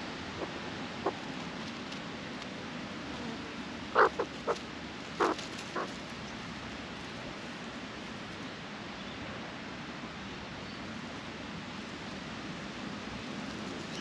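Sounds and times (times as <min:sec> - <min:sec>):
steady background hiss: 0:00.0 - 0:14.0
croaky magpie calls: 0:00.3 - 0:01.2, 0:03.9 - 0:04.6, 0:05.2 - 0:05.9.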